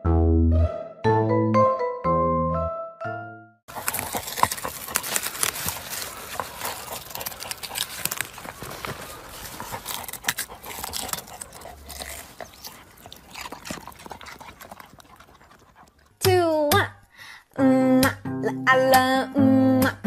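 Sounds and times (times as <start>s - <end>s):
dog rustling in plants: 3.7s - 15.0s
dog sniffing: 3.7s - 16.2s.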